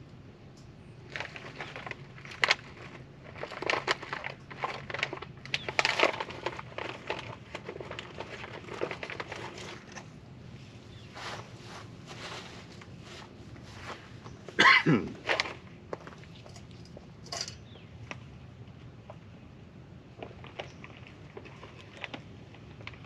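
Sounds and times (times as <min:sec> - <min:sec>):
foil pouch crinkling: 0:01.0 - 0:10.2, 0:20.2 - 0:23.0.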